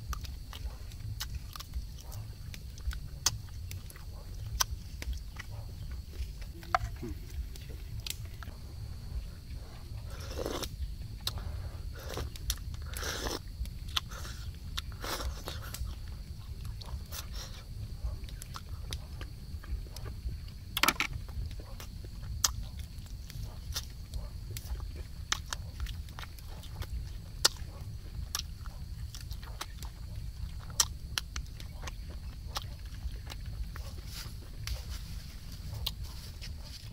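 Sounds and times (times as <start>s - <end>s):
person chewing: 0.0s - 20.2s, 21.5s - 34.8s, 35.7s - 36.0s
low rumble: 0.0s - 36.9s
person slurping soup: 10.1s - 13.5s
wet mouth clicks and smacks: 25.3s - 27.6s.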